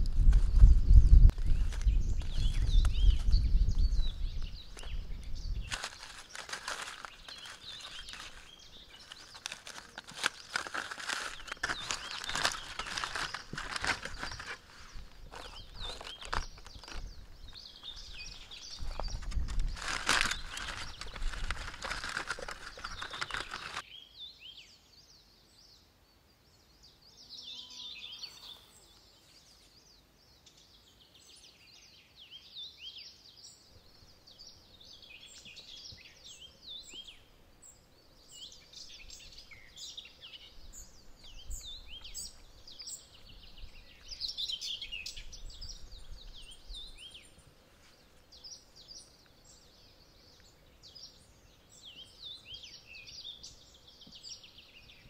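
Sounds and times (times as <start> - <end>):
birds chirping and singing: 0.2 - 55.0.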